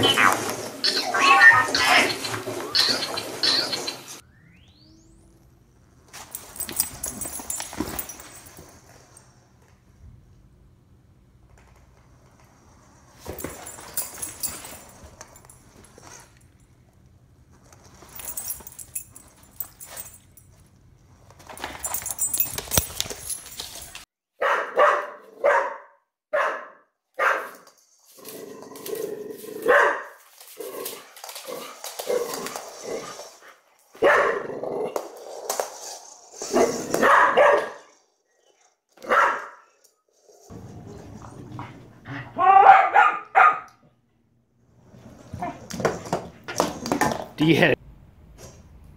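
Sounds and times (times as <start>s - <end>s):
dogs barking: 24.4s - 27.6s, 29.6s - 30.2s, 34.0s - 34.5s, 36.6s - 37.9s, 39.0s - 39.6s, 42.2s - 43.8s.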